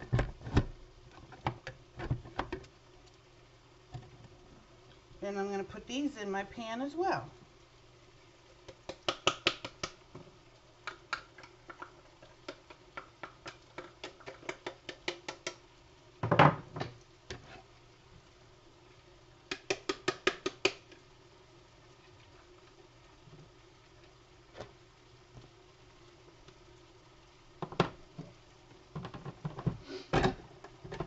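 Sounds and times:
utensil tapping steel skillet: 0:10.8 - 0:15.7, 0:19.5 - 0:21.0.

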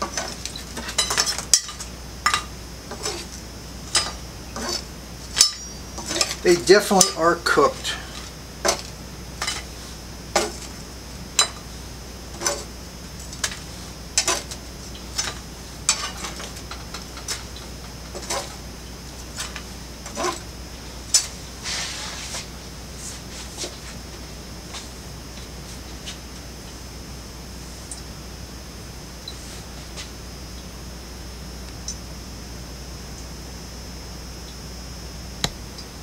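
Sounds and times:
spatula scraping: 0:00.0 - 0:10.8, 0:12.3 - 0:12.7, 0:13.3 - 0:18.6, 0:19.2 - 0:20.5, 0:21.1 - 0:24.0.

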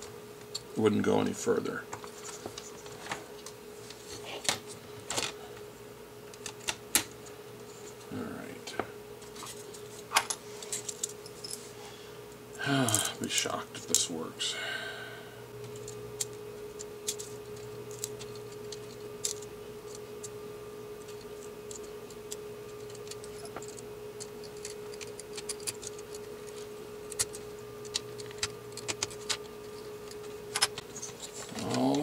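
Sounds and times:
steady hum: 0:00.0 - 0:32.0
plastic parts clicking and tapping: 0:27.1 - 0:29.5.

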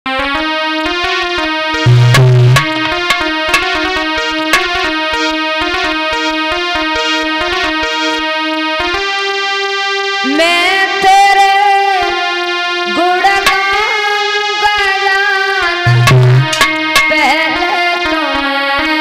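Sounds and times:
instrumental melody over drone: 0:00.1 - 0:19.0
woman singing: 0:10.2 - 0:12.3, 0:12.9 - 0:16.0, 0:16.8 - 0:19.0.

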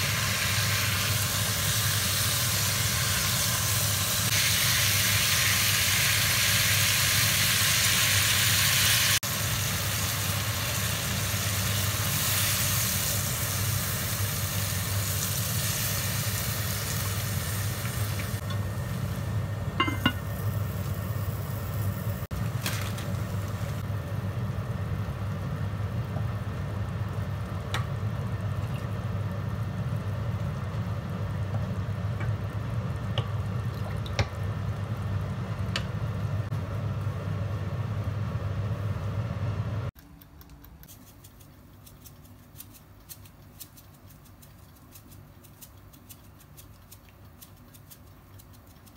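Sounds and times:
steam hissing: 0:00.0 - 0:18.5
food sizzling in a pot: 0:00.0 - 0:24.0.

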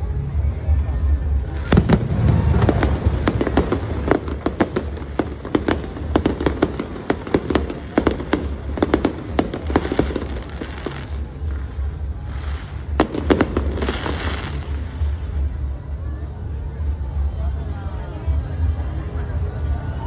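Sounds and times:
fireworks bangs and crackles: 0:00.2 - 0:17.2
fireworks bursting: 0:01.4 - 0:15.7.

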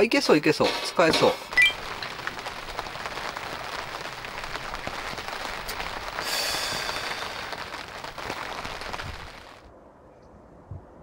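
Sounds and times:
meat sizzling on a grill: 0:01.0 - 0:09.4.

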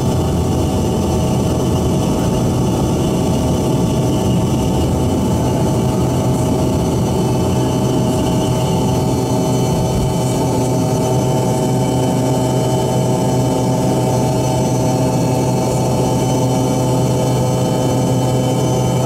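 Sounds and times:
jet engines droning in cabin: 0:00.0 - 0:19.0.

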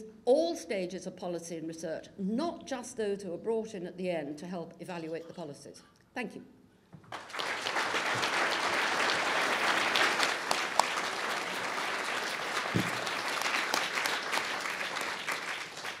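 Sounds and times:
audience applauding: 0:07.1 - 0:16.0.

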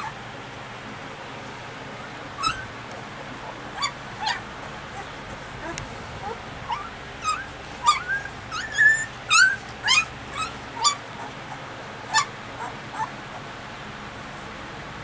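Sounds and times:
puppies squeaking and whimpering: 0:00.0 - 0:00.2, 0:02.3 - 0:02.8, 0:03.4 - 0:13.5.

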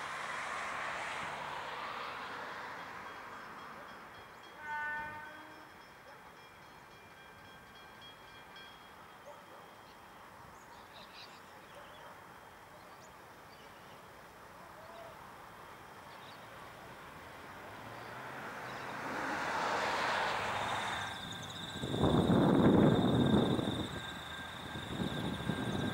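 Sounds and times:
car passing by: 0:00.0 - 0:03.8, 0:16.3 - 0:25.9
distant freight train rumble: 0:00.0 - 0:25.9.

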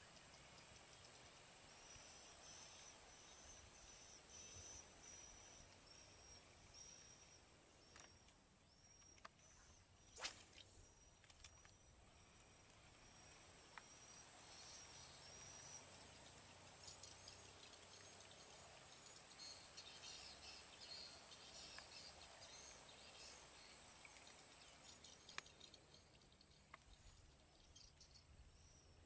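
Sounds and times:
faint bird chirps: 0:00.0 - 0:29.0
faint sharp clicks: 0:07.8 - 0:11.8, 0:21.6 - 0:22.1, 0:25.0 - 0:27.0
high insect drone: 0:12.2 - 0:25.2.

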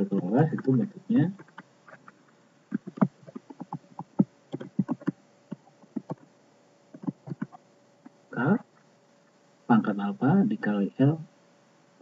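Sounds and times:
short taps and clicks: 0:02.7 - 0:06.2, 0:06.9 - 0:08.2.

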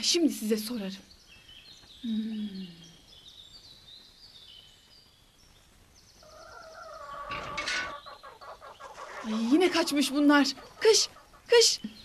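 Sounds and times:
small birds chirping: 0:00.0 - 0:12.0
poultry calling: 0:06.2 - 0:11.6.

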